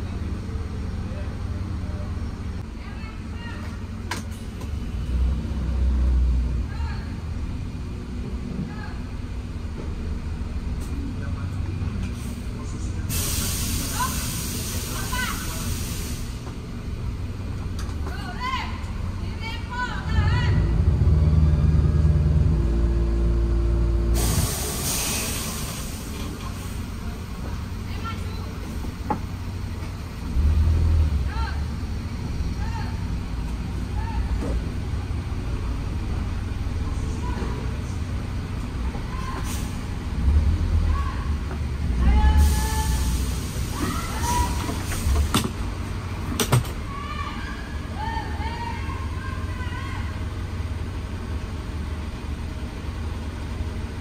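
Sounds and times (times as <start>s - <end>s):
heavy vehicle engine droning: 0.0s - 54.0s
air brakes hissing: 13.1s - 16.6s, 24.1s - 27.0s, 39.2s - 40.0s, 42.3s - 45.6s.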